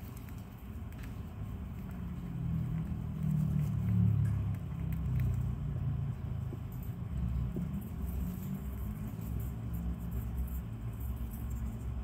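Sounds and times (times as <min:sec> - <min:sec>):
hamster chewing clicks: 0:00.0 - 0:09.0.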